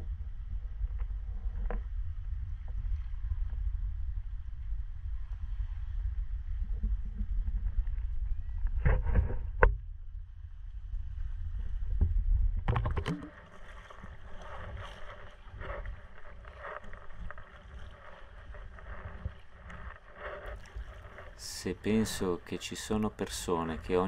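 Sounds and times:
low microphone rumble: 0.0s - 24.0s
water slapping hull: 11.9s - 24.0s
kayak paddle splashing: 12.7s - 24.0s.

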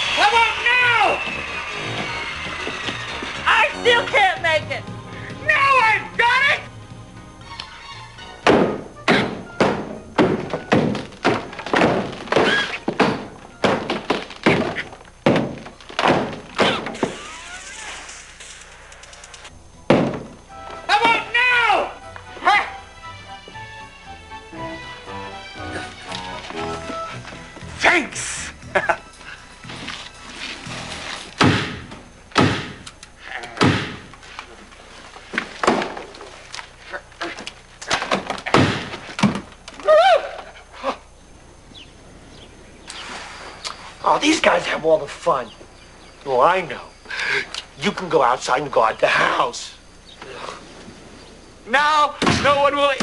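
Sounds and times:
heavy thuds: 8.4s - 17.2s, 19.7s - 21.2s, 31.3s - 32.8s, 33.6s - 34.2s, 37.9s - 39.5s
hard ringing knocks: 19.9s - 20.4s.

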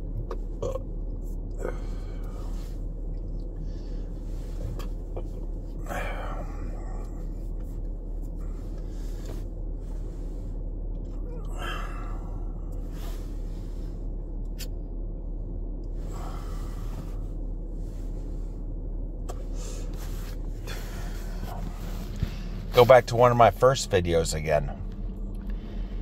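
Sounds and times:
car cabin hum: 0.0s - 26.0s
man breathing out heavily: 1.5s - 2.7s, 5.8s - 7.4s, 11.4s - 13.5s, 16.1s - 17.2s.

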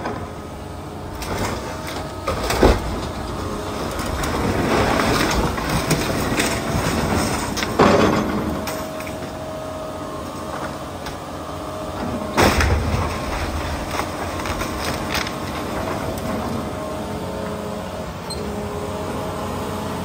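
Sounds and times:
excavator engine and hydraulics whine: 0.0s - 20.0s
breaking timber crashes: 1.2s - 9.4s, 12.0s - 16.8s.

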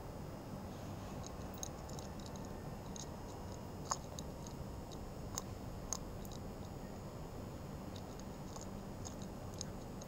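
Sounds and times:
low background noise: 0.0s - 10.0s
cat eating from ceramic bowl: 1.2s - 6.8s, 7.9s - 10.0s.

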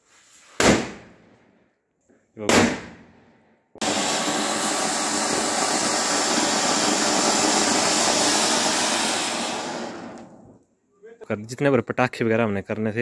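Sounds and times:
firework fountain hissing: 3.8s - 10.6s.

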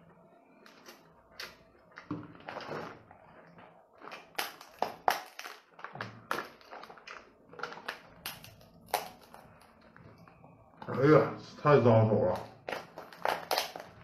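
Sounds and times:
crab shell cracking and snapping: 4.0s - 9.8s, 12.3s - 14.0s.

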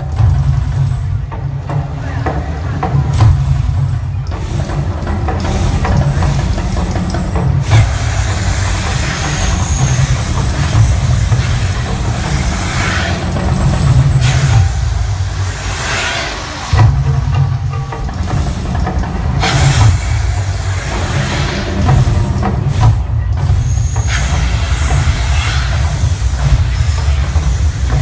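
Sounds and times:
flame jets whooshing: 7.6s - 17.2s.

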